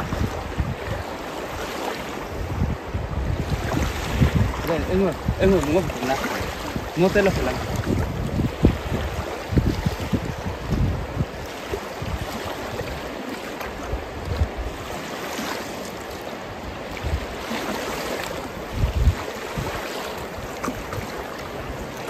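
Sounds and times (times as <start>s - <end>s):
river water washing against bank: 0.0s - 22.0s
wind buffeting microphone: 0.0s - 22.0s.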